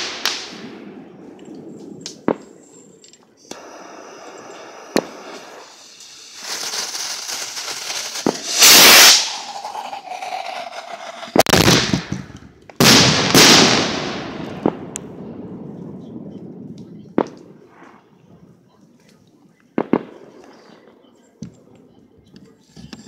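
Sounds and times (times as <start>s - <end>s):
fizzing shower of sparks: 0.0s - 0.7s, 3.5s - 12.2s
fireworks hissing: 0.0s - 0.8s, 3.5s - 14.2s
fireworks bangs: 0.0s - 18.7s, 19.7s - 21.7s.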